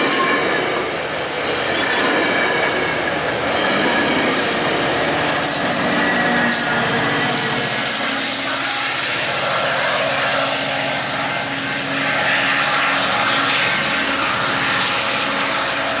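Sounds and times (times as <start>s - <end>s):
diesel locomotive running: 0.0s - 16.0s
train wheels on rails: 0.0s - 16.0s.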